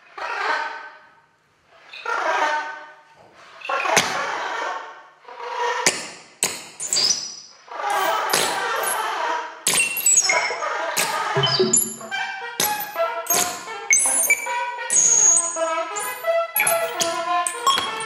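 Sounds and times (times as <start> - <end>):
electronic clicks and pops: 11.4 - 12.8.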